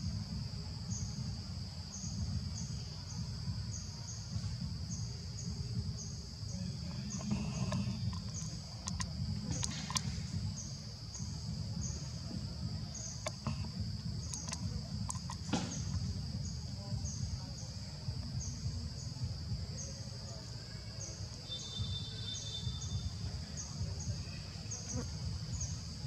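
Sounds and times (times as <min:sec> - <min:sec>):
insect chirps: 0:00.0 - 0:26.0
insects buzzing: 0:00.0 - 0:26.0
low ambient rumble: 0:00.0 - 0:26.0
sharp clicks: 0:07.2 - 0:10.2, 0:13.2 - 0:16.0.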